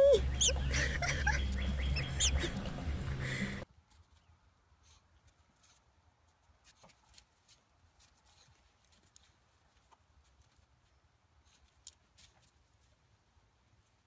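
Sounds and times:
low rumble: 0.0 - 3.6.

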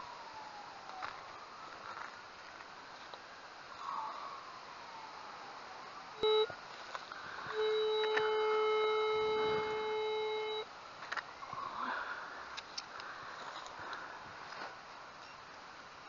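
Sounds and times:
metal detector beep: 6.2 - 6.5, 7.5 - 10.7
metal detector steady tone: 6.2 - 6.6, 7.3 - 10.7.

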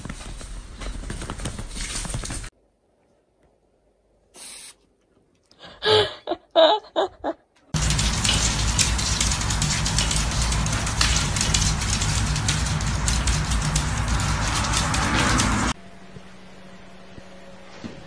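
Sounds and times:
steady hissing noise: 4.3 - 4.8.

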